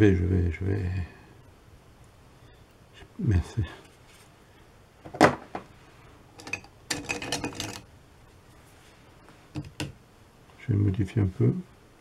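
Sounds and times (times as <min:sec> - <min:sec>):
painting tools clattering: 0:06.3 - 0:07.9.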